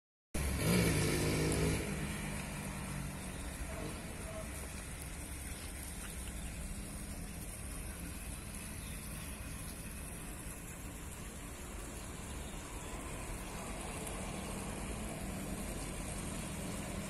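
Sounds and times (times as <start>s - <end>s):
motorcycle passing: 0.4s - 4.6s, 13.1s - 17.0s.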